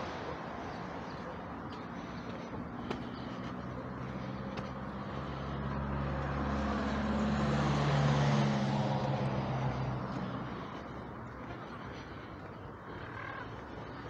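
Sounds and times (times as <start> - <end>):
vehicle engine passing by: 2.7 - 12.2.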